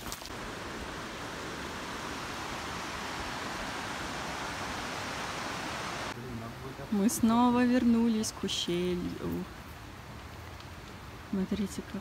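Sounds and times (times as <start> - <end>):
stream rushing over rocks: 0.0 - 6.2.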